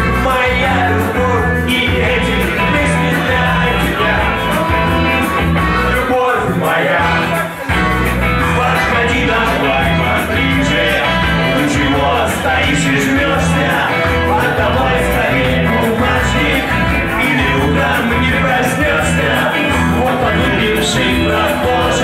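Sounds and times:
live rock band: 0.0s - 22.0s
person singing: 0.0s - 22.0s.

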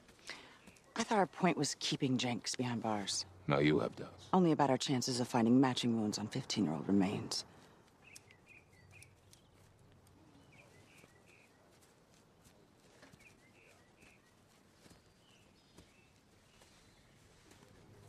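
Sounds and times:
bird chirps: 8.0s - 11.7s, 13.0s - 17.3s.

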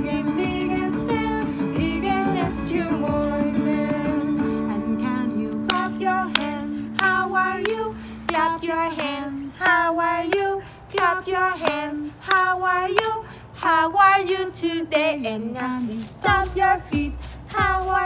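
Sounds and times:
woman singing: 0.0s - 18.0s
hand clapping: 5.6s - 14.4s.

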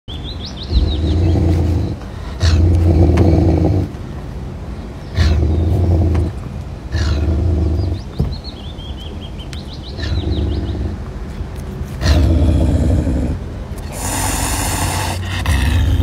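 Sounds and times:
small birds chirping: 0.1s - 16.0s
wild cat growling: 0.7s - 4.0s, 5.1s - 8.1s, 10.0s - 11.1s, 12.0s - 16.0s
breathy hiss: 13.0s - 16.0s.

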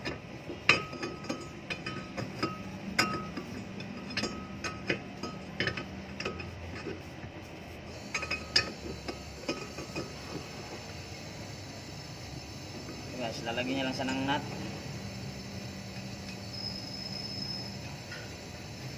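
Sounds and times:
metal tool clinking on studs: 0.0s - 7.0s, 7.9s - 10.4s.

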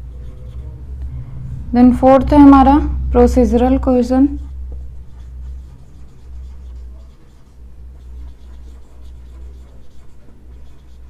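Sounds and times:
marker writing on whiteboard: 0.0s - 0.7s, 4.3s - 11.0s
steady low hum: 0.0s - 11.0s.

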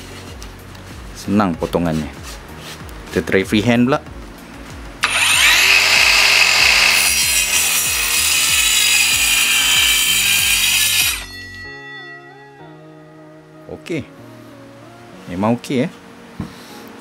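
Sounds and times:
faint background music: 0.0s - 17.0s
circular saw cutting wood: 5.0s - 11.8s.

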